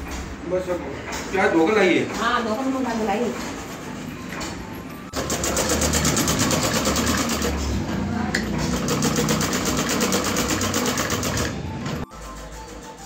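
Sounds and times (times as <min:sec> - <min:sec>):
sewing machine stitching: 0:05.2 - 0:13.0.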